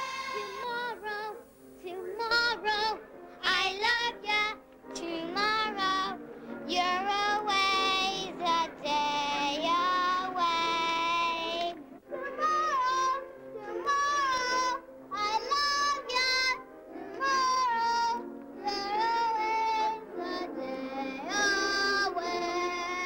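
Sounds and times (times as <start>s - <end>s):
girl singing: 0.0s - 23.0s.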